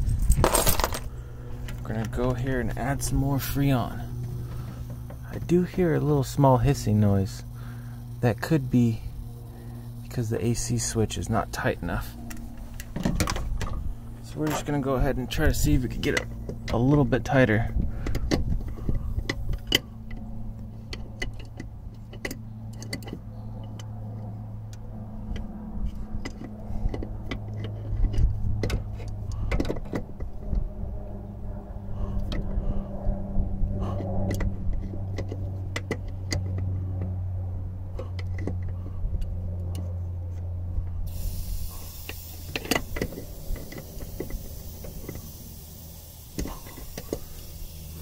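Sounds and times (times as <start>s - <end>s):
steady hiss: 41.1s - 48.0s.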